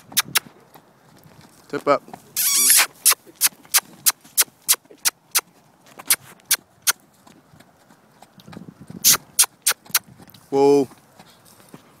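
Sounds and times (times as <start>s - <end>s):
person clucking tongue: 0.1s - 0.4s.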